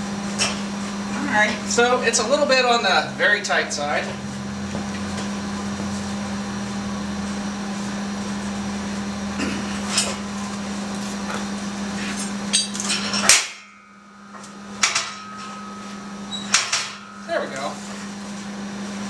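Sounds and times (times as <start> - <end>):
steady hum: 0.0 - 19.0
steel knocks and clanks: 12.2 - 18.6.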